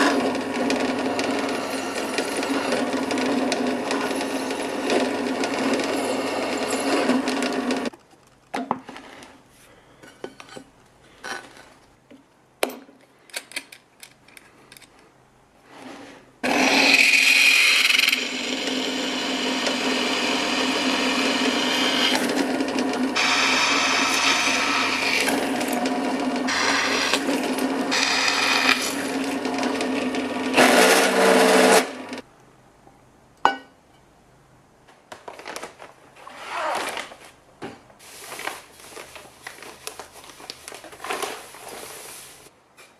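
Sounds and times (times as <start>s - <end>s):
pillar drill drilling steel: 16.4s - 32.2s.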